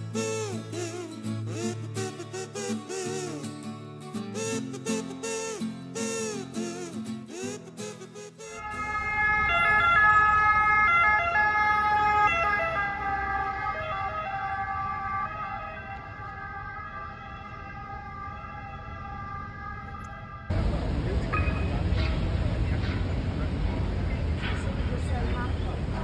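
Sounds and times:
street traffic: 0.0 - 26.0
emergency vehicle siren: 8.5 - 20.8.

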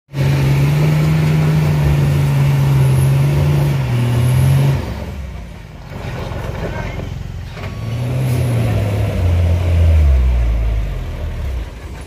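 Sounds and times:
truck diesel engine running hard: 0.1 - 12.0.

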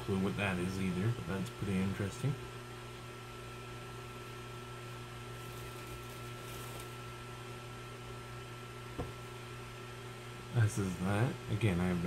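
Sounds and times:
low electrical hum: 0.0 - 12.0
room noise hiss: 0.0 - 12.0.

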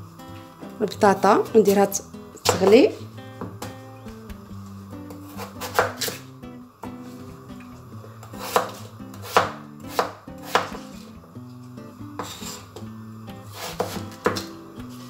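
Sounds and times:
soft background music: 0.0 - 15.0
knife chopping on wooden board: 2.4 - 3.8, 5.1 - 6.2, 8.4 - 11.0, 12.2 - 12.7, 13.5 - 14.5.

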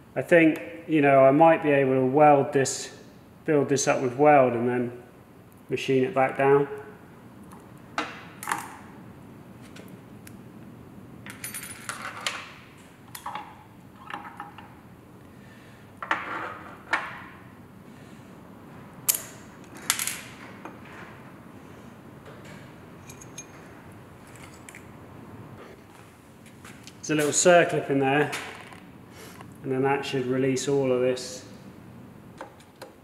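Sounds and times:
steel parts clinking: 23.0 - 23.6.

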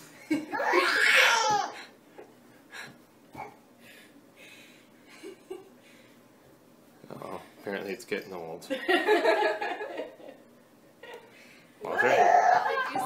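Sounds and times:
baby squealing with laughter: 0.5 - 1.8, 12.0 - 13.0.

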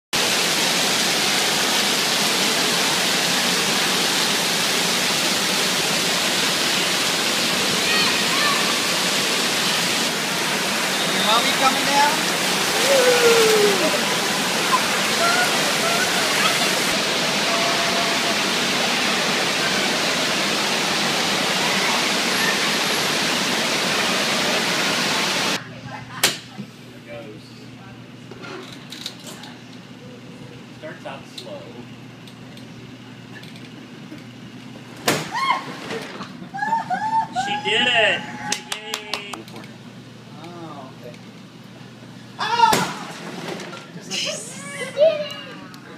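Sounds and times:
water pouring and spraying: 0.2 - 25.6.

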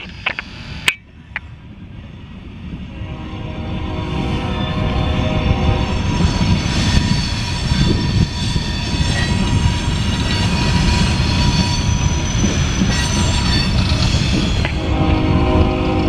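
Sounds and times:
freight train wheels rumbling: 0.0 - 16.0
thin wheel squeal: 6.0 - 14.7.

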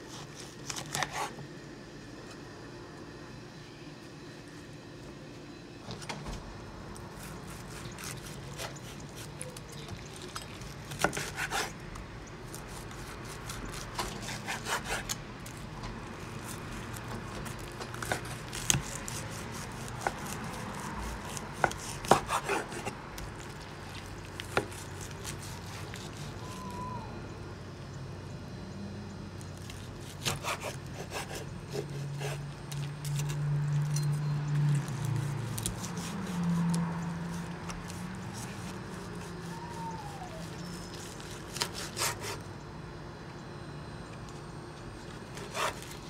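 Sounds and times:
knife sawing through ribs: 0.0 - 1.4, 7.2 - 9.5, 10.9 - 11.8, 12.5 - 15.2, 16.2 - 26.4, 29.7 - 32.8, 34.9 - 39.6, 40.3 - 42.4, 45.3 - 46.0.

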